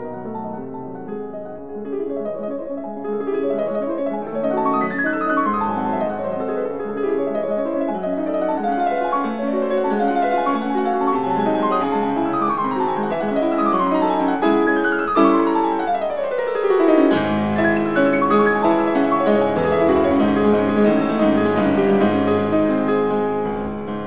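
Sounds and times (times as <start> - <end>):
lively piano music: 0.0 - 24.0.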